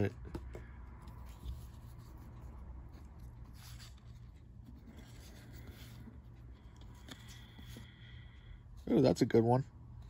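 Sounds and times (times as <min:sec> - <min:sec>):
steady low hum: 0:00.0 - 0:10.0
cards sliding and scraping: 0:00.4 - 0:08.0.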